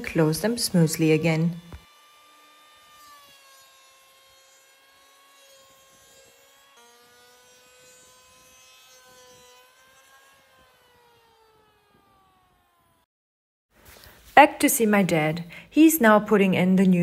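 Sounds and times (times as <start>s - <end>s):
electric planer whining: 0.0s - 13.1s.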